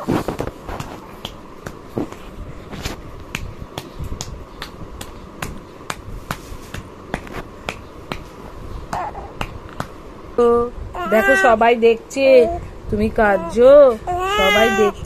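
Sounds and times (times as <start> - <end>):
palm patting baby's back: 0.0 - 10.0.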